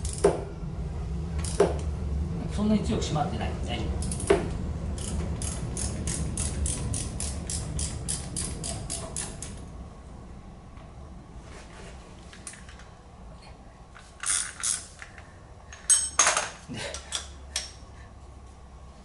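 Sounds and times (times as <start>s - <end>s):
ratchet wrench clicking: 0.0s - 0.3s, 1.4s - 1.6s, 4.0s - 4.4s, 5.0s - 9.6s, 14.2s - 15.2s.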